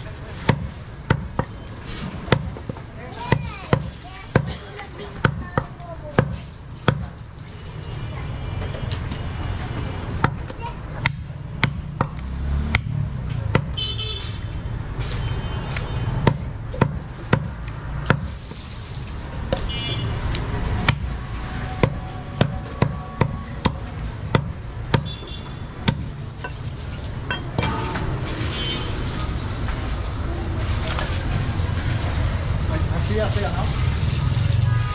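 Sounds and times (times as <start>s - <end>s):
knife chopping meat on wood block: 0.5s - 1.6s, 2.3s - 4.6s, 5.2s - 7.2s, 10.2s - 13.8s, 15.7s - 18.3s, 20.6s - 21.1s, 21.8s - 26.1s.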